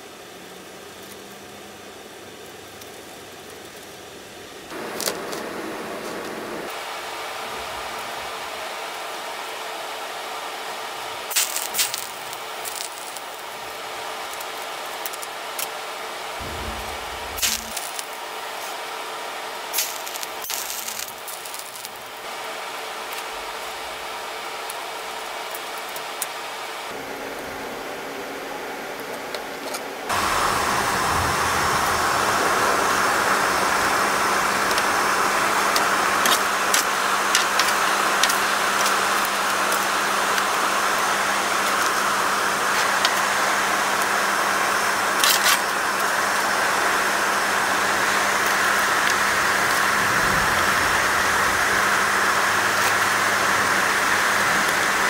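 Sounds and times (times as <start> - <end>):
forge roaring: 16.3 - 18.5, 30.1 - 43.2, 45.8 - 55.0.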